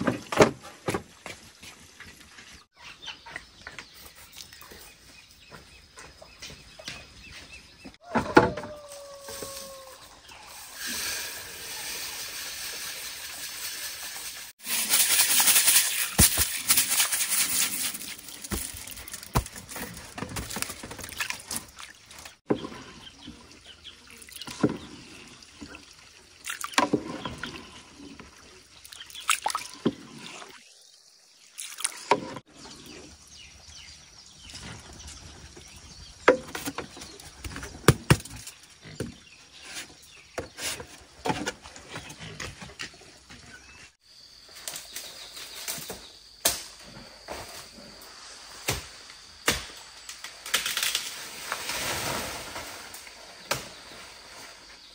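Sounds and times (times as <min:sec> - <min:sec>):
water pouring: 0:10.4 - 0:30.8
rice grains pouring: 0:10.5 - 0:19.3
splashes and knocks in water: 0:18.2 - 0:22.8, 0:28.8 - 0:30.6.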